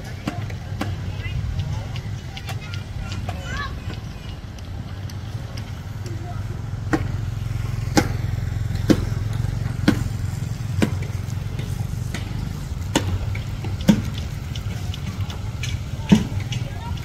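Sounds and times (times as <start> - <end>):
sharp knocks: 6.8 - 7.3, 7.9 - 17.0.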